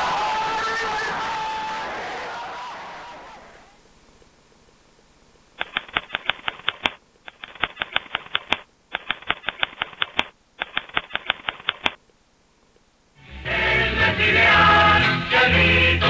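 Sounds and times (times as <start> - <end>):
typewriter keys clacking: 5.6 - 12.0.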